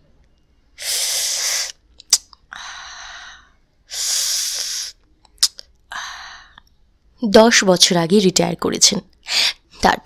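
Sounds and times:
soft breathy sound: 2.5 - 5.0, 5.8 - 6.7.

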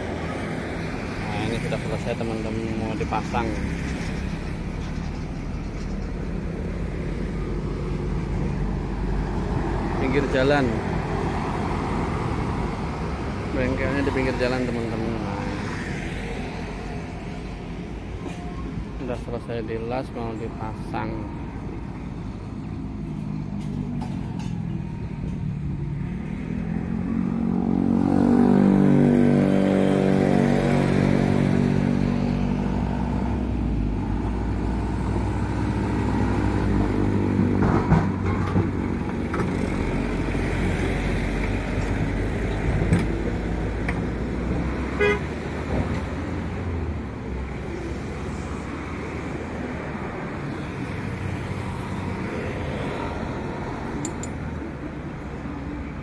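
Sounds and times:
low traffic rumble: 0.0 - 56.0.

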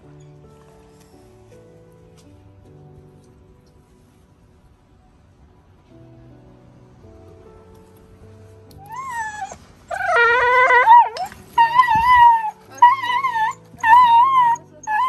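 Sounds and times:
small dog howling and screaming: 8.8 - 15.0.

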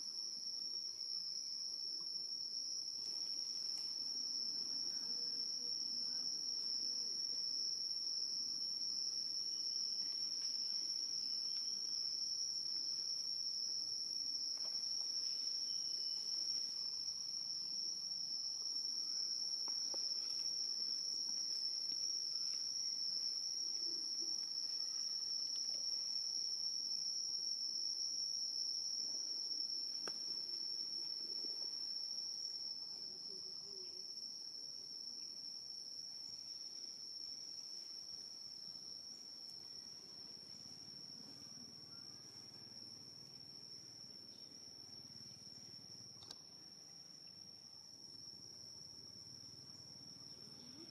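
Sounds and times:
insects drone: 0.0 - 50.9
faint ticks: 46.1 - 46.5.

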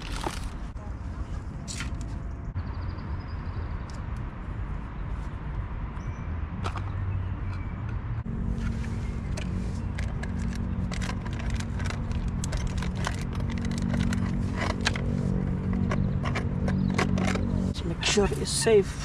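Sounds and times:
plastic case clicking and scraping: 8.6 - 17.7.

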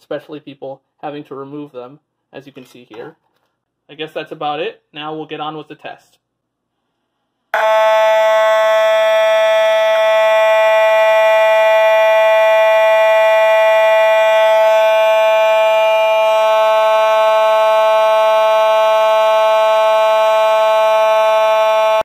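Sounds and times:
fire alarm horn steady tone: 7.5 - 22.0.

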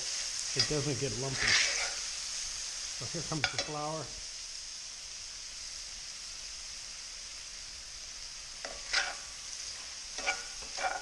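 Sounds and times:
food sizzling in a pan: 0.0 - 11.0
utensil scraping a pan: 0.5 - 2.2, 8.6 - 11.0.

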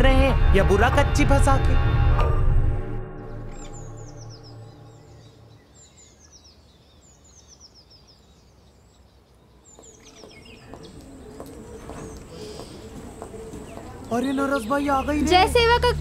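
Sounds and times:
steady low tone: 0.0 - 5.7
background music: 0.0 - 5.8, 13.6 - 16.0
faint outdoor background: 0.0 - 16.0
small birds chirping: 3.5 - 16.0.

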